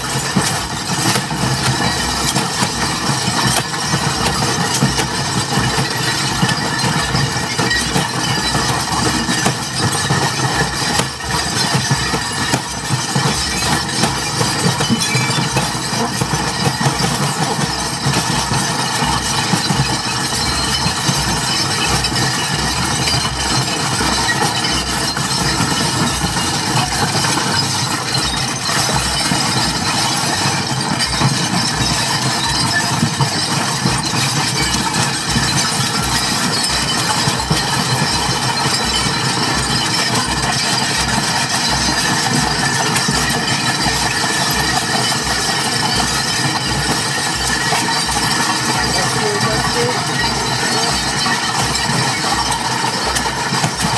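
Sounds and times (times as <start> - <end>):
loud amplified noise: 42.3 - 53.9.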